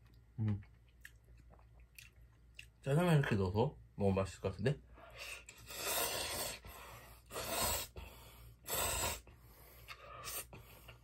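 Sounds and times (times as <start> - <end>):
person slurping noodles: 5.5 - 6.6, 7.3 - 7.9.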